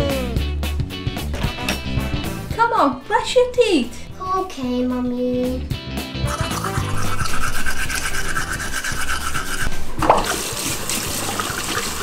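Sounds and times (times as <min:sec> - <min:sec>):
toothbrush scrubbing teeth: 0:06.3 - 0:12.0
tap running: 0:09.6 - 0:12.0.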